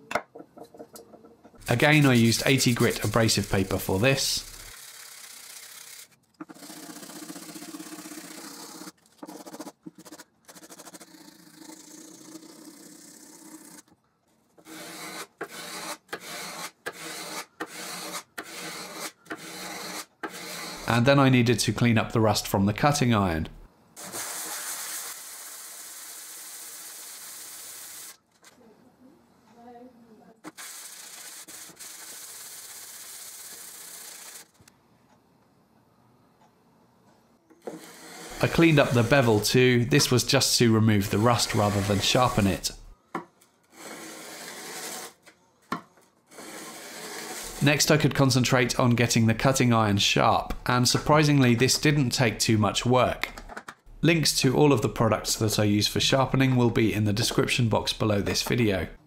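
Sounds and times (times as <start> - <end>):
metal scraping on abrasive paper: 1.7 - 13.9, 14.6 - 20.9, 30.5 - 34.6, 37.7 - 42.8, 43.7 - 45.2, 46.3 - 48.2
plane iron rubbed on abrasive paper: 2.0 - 13.8, 14.7 - 20.9, 37.8 - 40.2, 41.0 - 42.7, 43.8 - 45.2, 46.3 - 47.9
metal blade rasping on sandpaper: 14.6 - 20.9, 37.8 - 39.5, 41.1 - 42.6, 43.7 - 45.2, 46.3 - 47.6.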